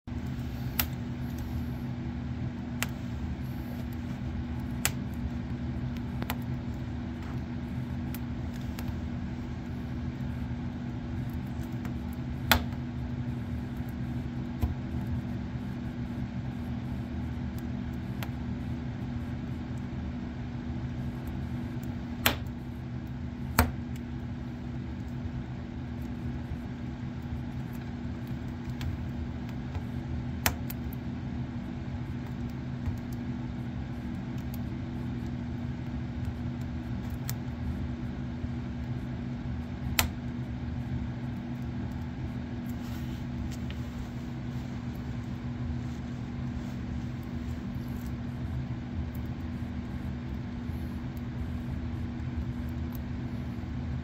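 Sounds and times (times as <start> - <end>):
steady low hum: 0.0 - 54.0
wood fire crackling and popping: 0.2 - 1.6, 2.2 - 43.9.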